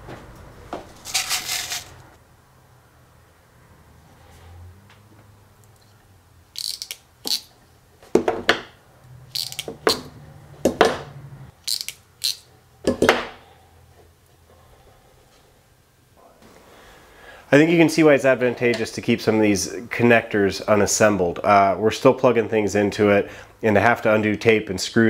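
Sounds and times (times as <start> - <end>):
ratcheting crimp tool clicking: 6.6 - 7.5, 9.3 - 10.1, 11.6 - 12.4.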